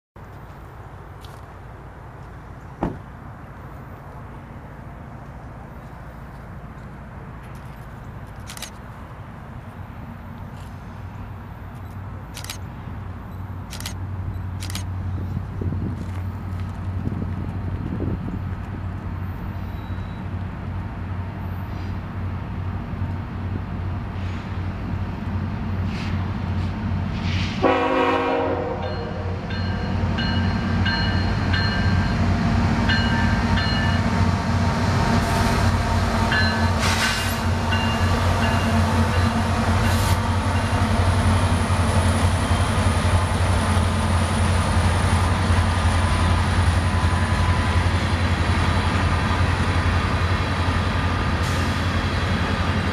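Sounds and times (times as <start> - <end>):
locomotive engine drone: 0.2 - 52.9
train horn blast: 27.6 - 29.5
train cars clanking: 35.0 - 52.9.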